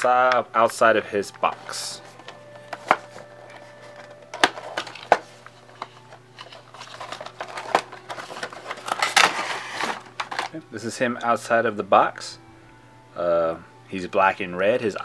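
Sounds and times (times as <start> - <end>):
packaging crinkling and rustling: 1.4 - 10.6.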